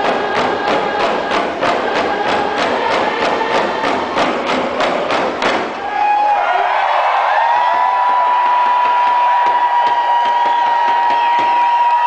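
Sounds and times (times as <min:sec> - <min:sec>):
group singing: 0:00.0 - 0:05.4
hand drums beating: 0:00.0 - 0:05.8, 0:08.0 - 0:11.8.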